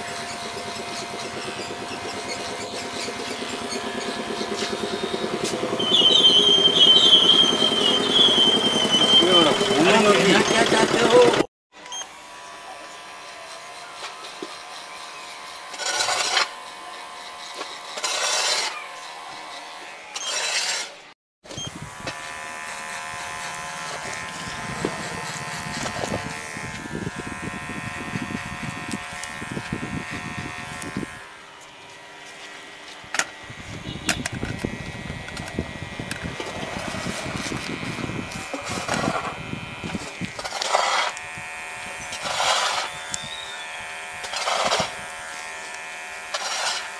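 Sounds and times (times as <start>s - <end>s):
hair trimmer buzzing: 0.0s - 46.9s.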